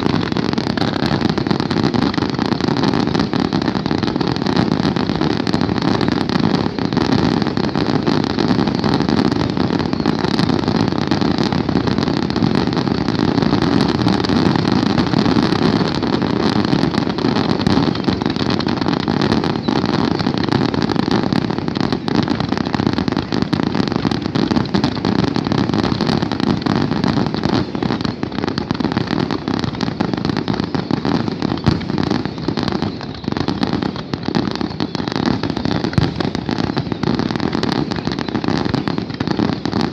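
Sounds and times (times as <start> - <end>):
fireworks bangs and crackles: 0.0 - 39.9.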